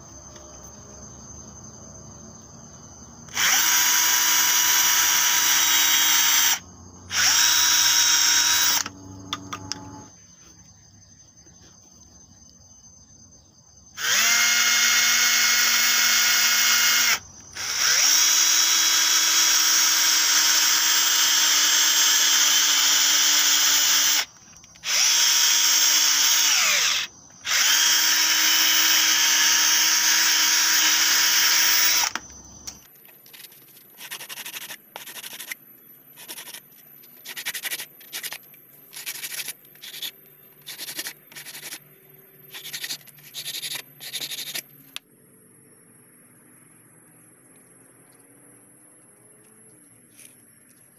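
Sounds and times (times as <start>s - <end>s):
cordless drill whining: 3.3s - 10.1s, 14.0s - 32.8s.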